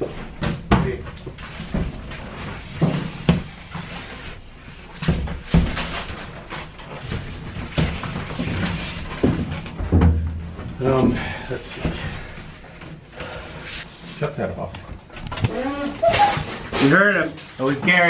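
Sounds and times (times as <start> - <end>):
plywood sheet knocking and thumping: 7.2 - 10.8.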